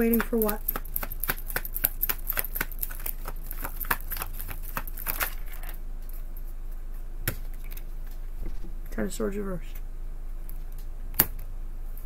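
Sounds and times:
cards being shuffled: 0.0s - 5.8s
faint steady hum: 0.0s - 12.0s.

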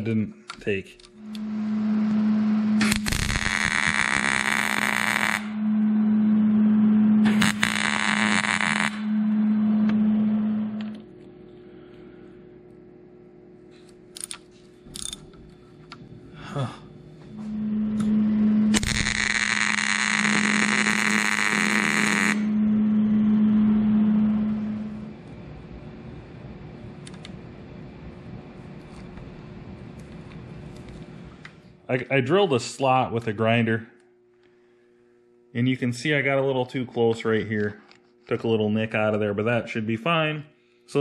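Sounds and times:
steady low hum: 0.0s - 41.0s
welding arc crackling and hissing: 2.7s - 5.6s, 7.2s - 9.1s, 18.7s - 22.5s.

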